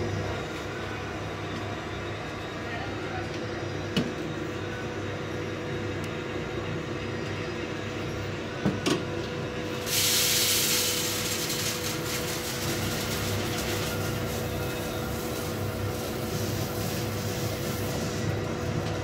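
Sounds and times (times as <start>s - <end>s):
hiss: 9.8s - 18.4s.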